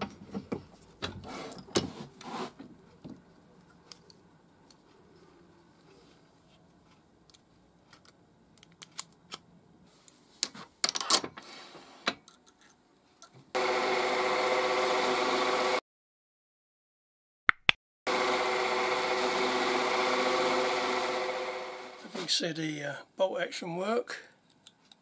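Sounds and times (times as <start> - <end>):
lathe running: 13.6 - 15.8, 18.1 - 22.2.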